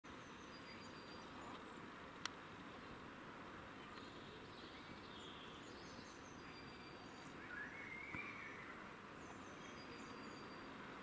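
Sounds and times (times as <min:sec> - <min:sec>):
distant birds chirping: 0:00.1 - 0:11.0
outdoor background hiss: 0:00.1 - 0:11.0
rising bird call: 0:06.5 - 0:08.8.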